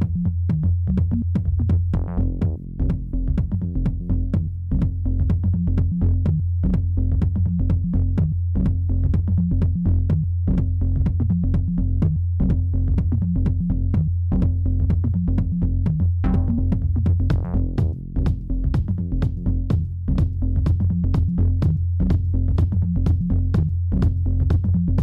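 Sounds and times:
electronic music with drum beat: 0:00.0 - 0:25.0.

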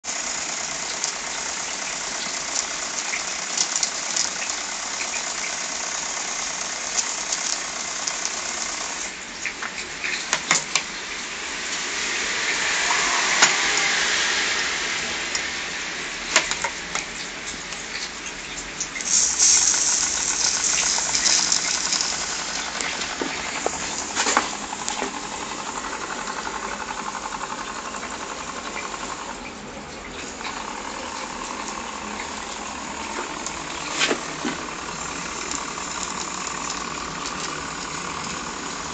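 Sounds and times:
steady steam hiss: 0:11.1 - 0:29.4, 0:30.2 - 0:38.9.

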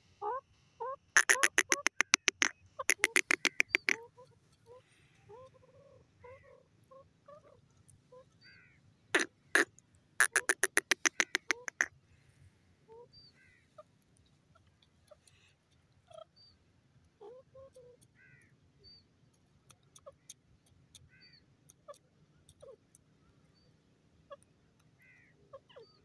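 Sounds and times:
francolin calling sharp notes: 0:01.2 - 0:04.0, 0:09.2 - 0:11.9
faint bird chirps: 0:01.2 - 0:16.6.

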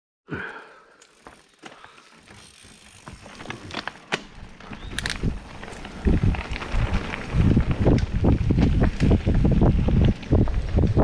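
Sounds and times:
bike rattling: 0:00.9 - 0:11.0
bike tyres rolling over stones: 0:01.0 - 0:11.0
wind noise: 0:02.4 - 0:11.0.

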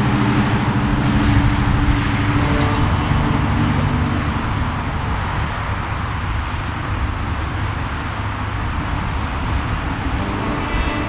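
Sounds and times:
deep uneven outdoor rumble: 0:00.0 - 0:11.0.

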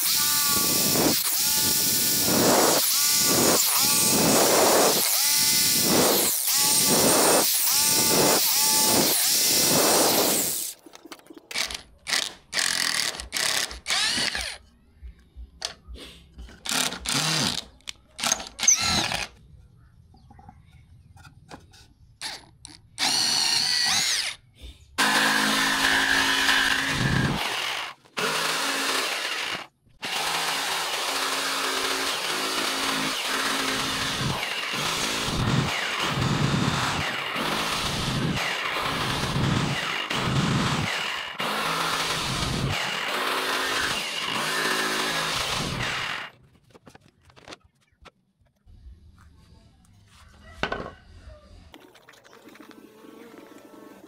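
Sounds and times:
drill boring through wood: 0:00.0 - 0:10.8, 0:11.6 - 0:14.6, 0:16.6 - 0:17.6, 0:18.2 - 0:19.3, 0:23.0 - 0:24.4, 0:25.0 - 0:46.3
jigsaw cutting plywood: 0:00.0 - 0:10.8, 0:11.5 - 0:14.6, 0:16.6 - 0:19.3, 0:23.0 - 0:24.4, 0:25.0 - 0:46.4.

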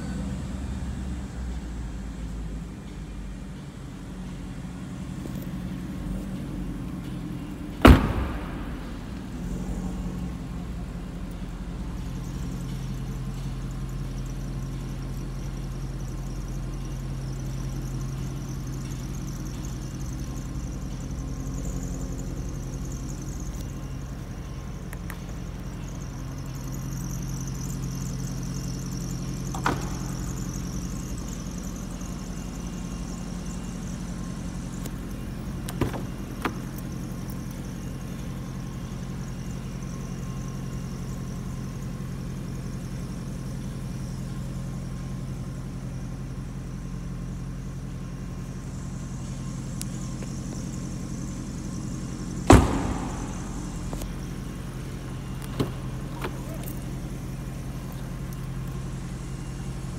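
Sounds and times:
steady low hum: 0:00.0 - 0:59.9
car door shutting: 0:07.6 - 0:09.8, 0:28.9 - 0:30.6, 0:35.0 - 0:37.6, 0:52.4 - 0:57.4.

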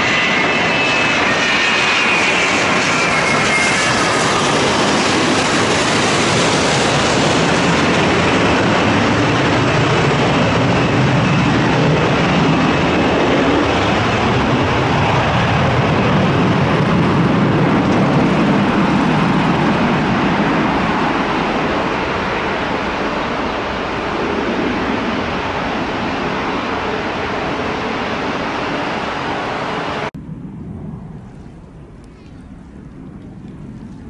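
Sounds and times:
jet engines running: 0:00.0 - 0:34.0
deep rumble: 0:22.7 - 0:34.0.

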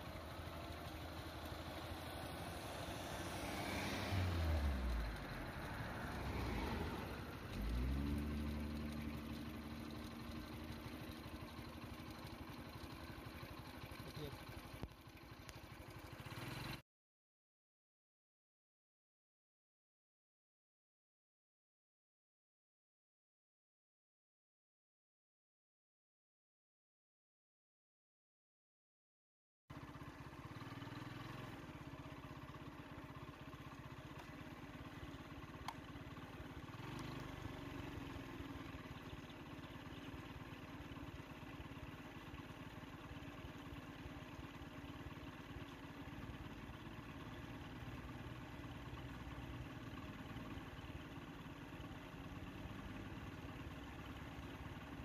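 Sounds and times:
vehicle engine idling: 0:00.0 - 0:16.8, 0:29.7 - 0:55.0.

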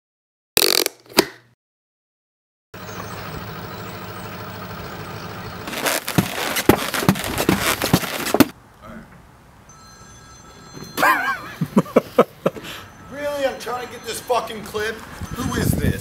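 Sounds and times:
outdoor hum: 0:02.8 - 0:15.7
skates knocking on concrete steps: 0:05.7 - 0:08.5.

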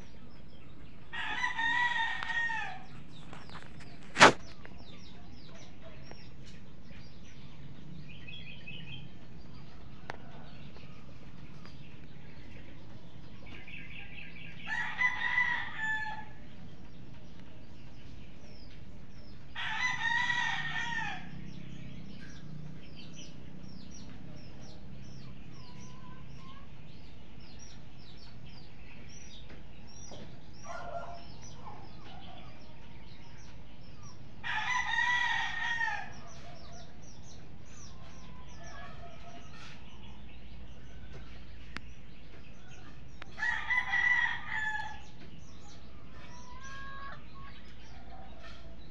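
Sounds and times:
small birds chirping: 0:00.0 - 0:48.9
rooster crowing: 0:01.1 - 0:02.9, 0:14.7 - 0:16.4, 0:19.6 - 0:21.4, 0:34.4 - 0:36.4, 0:43.3 - 0:45.1.

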